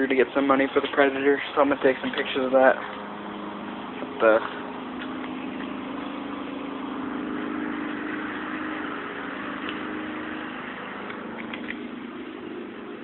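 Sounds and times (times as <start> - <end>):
small engine idling: 0.0 - 13.0.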